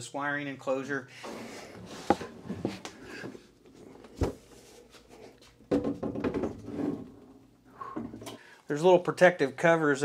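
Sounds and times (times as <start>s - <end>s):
knocks and clunks of equipment handling: 1.3s - 4.6s, 5.5s - 7.2s.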